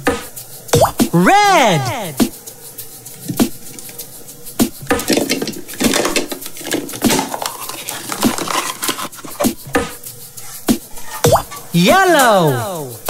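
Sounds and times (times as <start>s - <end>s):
plastic egg clicking and rubbing: 3.1s - 11.8s.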